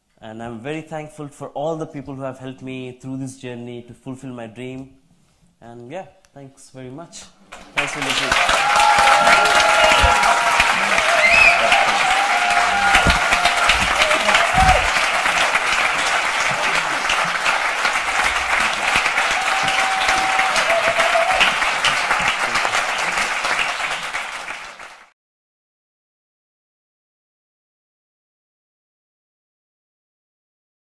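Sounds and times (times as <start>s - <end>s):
audience applauding: 7.5s - 25.1s.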